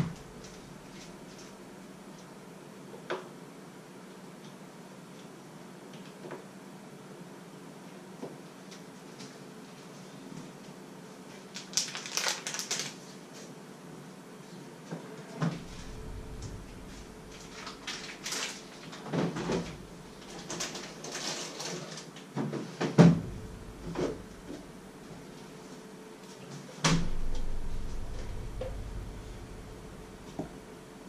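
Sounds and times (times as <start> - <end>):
low rumble: 15.5 - 20.3, 23.1 - 25.3, 26.9 - 31.0
knocks and clunks inside refrigerator: 22.9 - 24.6
refrigerator door shutting thud: 23.0 - 24.6, 26.8 - 30.5.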